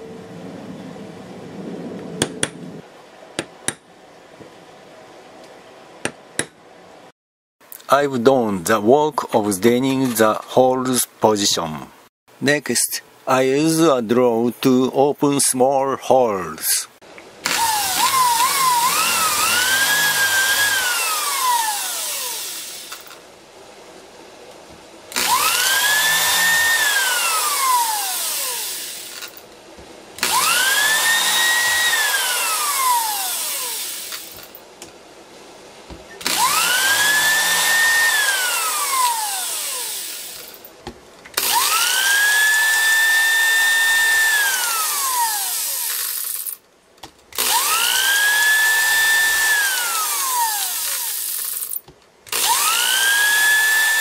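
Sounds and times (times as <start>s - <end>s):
electric drill whining: 17.4s - 23.2s, 25.1s - 29.4s, 30.2s - 34.6s, 36.2s - 40.6s, 41.4s - 46.6s, 47.4s - 54.0s.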